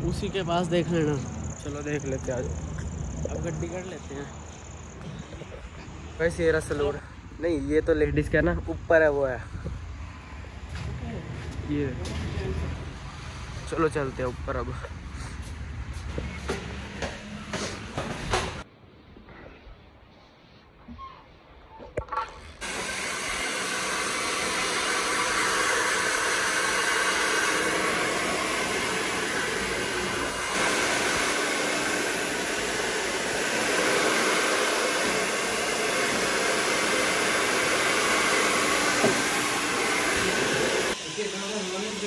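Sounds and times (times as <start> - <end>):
hair dryer blowing: 22.6 - 42.0.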